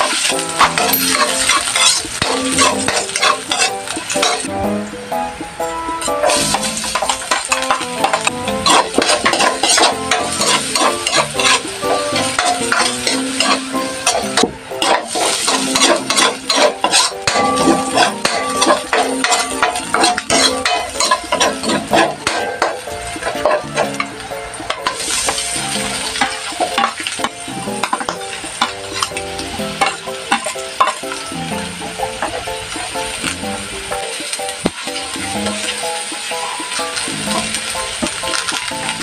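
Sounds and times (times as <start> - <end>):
metal spatula scraping a wok: 0.0 - 4.5, 6.0 - 31.2
onion frying in oil: 0.0 - 39.0.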